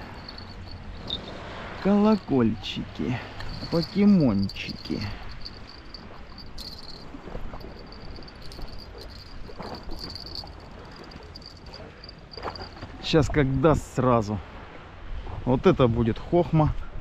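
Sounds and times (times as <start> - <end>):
high-pitched insect-like chirring: 0.0 - 2.4, 3.3 - 12.8
low steady rumble: 0.0 - 13.9.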